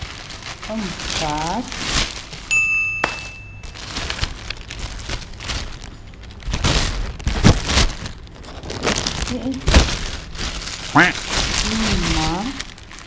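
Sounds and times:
plastic bag crinkling: 0.0 - 13.0
steady high tone: 2.5 - 3.8.

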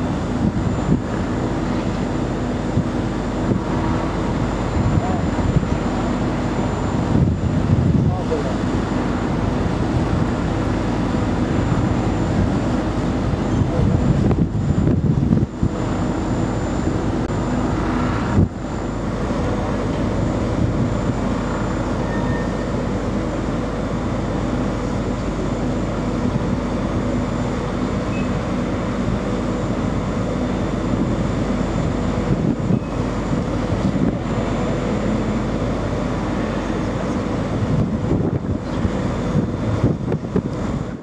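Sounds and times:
ship engines droning: 0.0 - 41.0.

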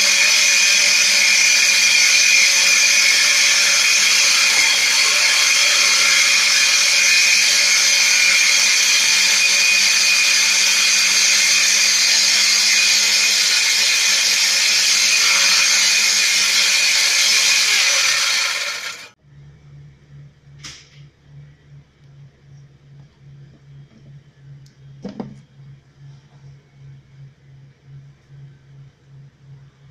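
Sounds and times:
angle grinder high whine: 0.0 - 20.2.

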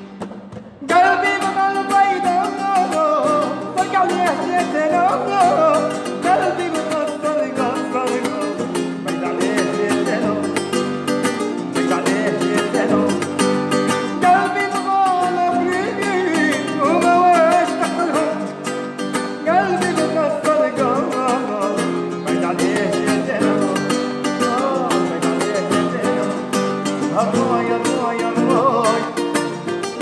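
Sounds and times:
plucked guitar: 0.0 - 30.0.

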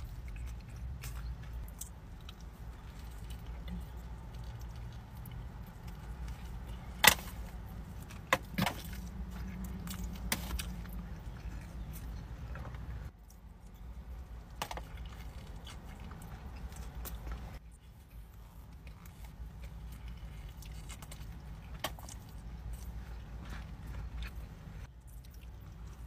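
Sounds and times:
person biting and chewing: 14.5 - 26.0.

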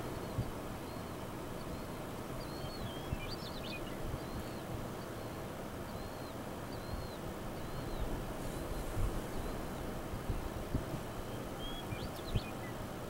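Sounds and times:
small birds chirping: 0.0 - 9.9, 11.1 - 12.8.

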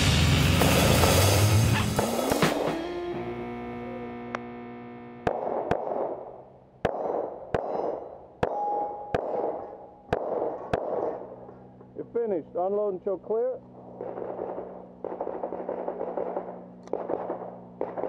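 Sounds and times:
held music chord: 1.3 - 5.3
pistol shots with echo: 5.2 - 11.5, 13.8 - 18.0.

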